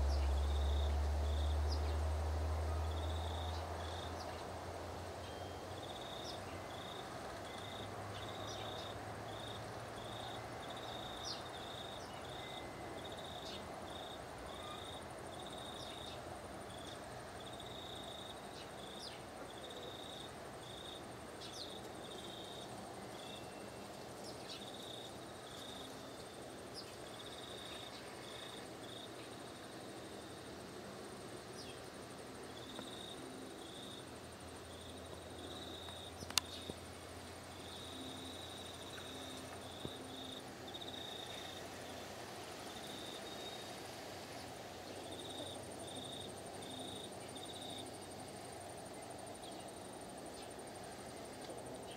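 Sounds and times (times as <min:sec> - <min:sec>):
faint outdoor hum: 0:00.0 - 0:51.9
insects chirping: 0:00.0 - 0:51.9
faint ticks: 0:35.8 - 0:36.9.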